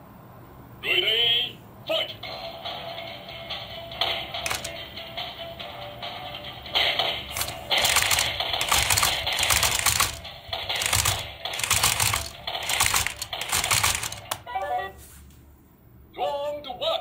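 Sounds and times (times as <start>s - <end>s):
toy robot gears clattering: 4.4s - 4.8s, 7.3s - 14.5s.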